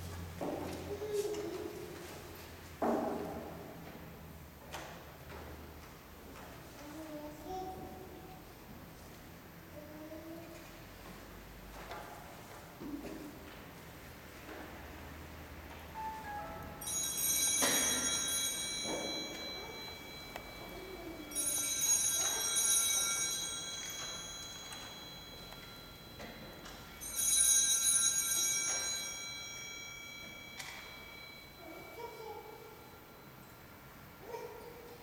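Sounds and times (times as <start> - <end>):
altar bells ringing: 16.0 - 34.3.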